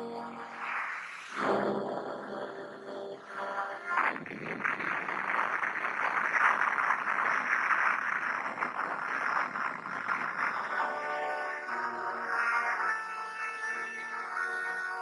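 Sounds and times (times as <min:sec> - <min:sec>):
explosion with crackling rush: 0:04.0 - 0:10.7.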